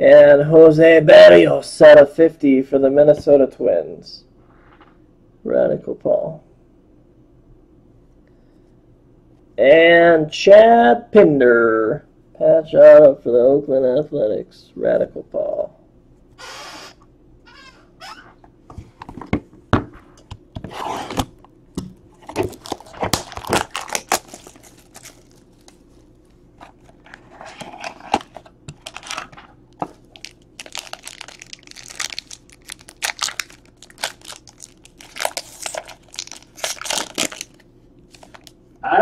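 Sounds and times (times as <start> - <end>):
foil wrapper crinkling and ripping: 22.2 - 26.4, 27.8 - 38.5
cardboard tearing: 22.3 - 25.8, 30.2 - 37.5.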